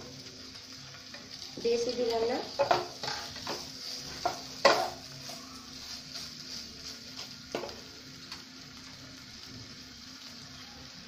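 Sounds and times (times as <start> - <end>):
faint sizzle of paste frying: 0.0 - 11.0
wooden spatula knocking on wok: 2.6 - 2.9.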